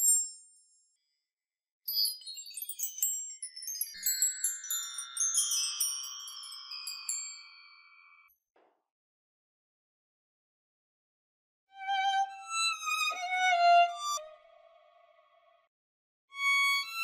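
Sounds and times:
wind chimes tinkling: 0:01.9 - 0:08.3.

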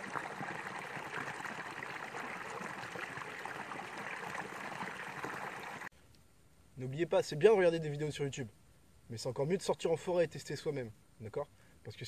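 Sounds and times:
stream splashing over a cascade: 0:00.0 - 0:05.9.

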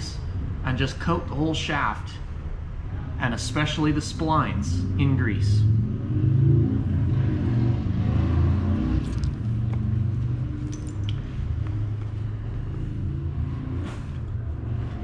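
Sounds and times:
steady low rumble: 0:00.0 - 0:15.0
faint clicks and rustles: 0:09.1 - 0:15.0.

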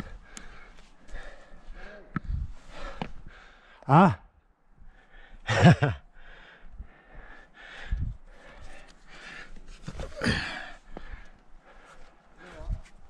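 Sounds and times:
heavy breathing: 0:00.0 - 0:03.9, 0:04.8 - 0:13.0
sharp gasping breath: 0:00.0 - 0:03.9, 0:06.2 - 0:12.6.

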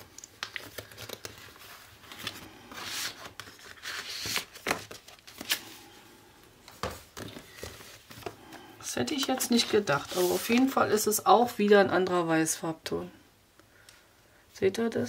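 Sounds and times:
cardstock rustling and sliding: 0:00.4 - 0:05.6, 0:09.2 - 0:10.8.

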